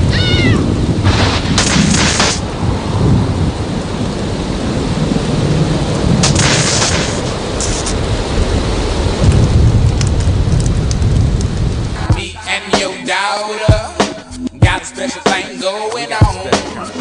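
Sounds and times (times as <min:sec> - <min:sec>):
low rolling thunder: 0:00.0 - 0:12.3
steady rain: 0:00.0 - 0:13.9
crackling surges of hiss: 0:00.0 - 0:17.0.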